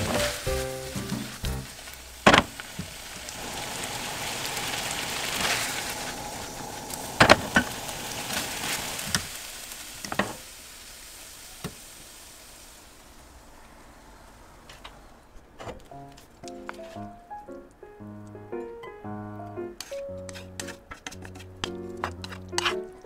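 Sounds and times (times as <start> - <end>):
pasta sizzling in a frying pan: 0.0 - 13.6.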